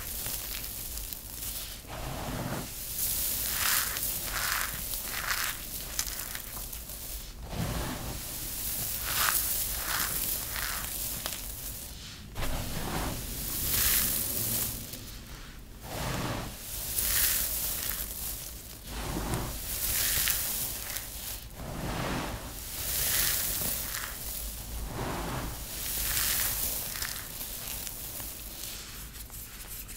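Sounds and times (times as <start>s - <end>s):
hands crunching dry soap crumbs: 0.0s - 15.6s, 16.2s - 29.9s.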